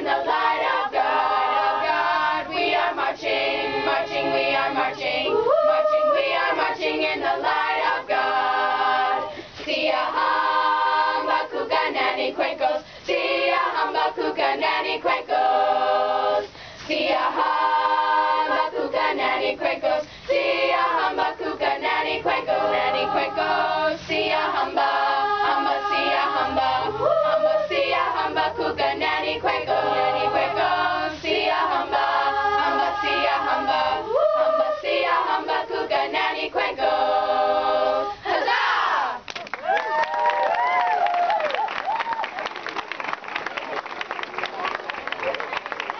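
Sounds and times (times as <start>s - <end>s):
choir singing unaccompanied: 0.0s - 39.3s.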